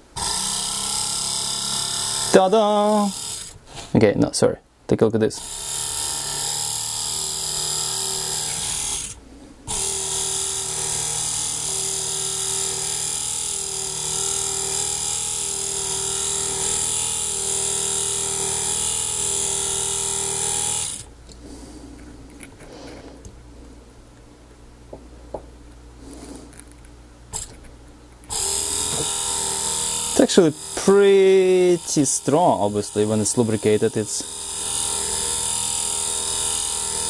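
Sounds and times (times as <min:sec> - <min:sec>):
electric motor whirring: 0:00.2 - 0:03.6, 0:05.4 - 0:21.1, 0:27.3 - 0:27.6, 0:28.3 - 0:37.0.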